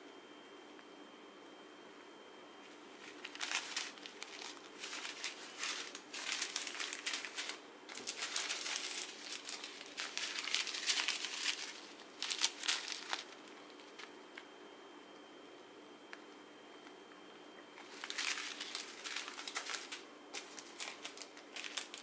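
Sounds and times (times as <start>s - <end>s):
plastic bags crinkling: 2.9s - 14.4s, 17.8s - 22.0s.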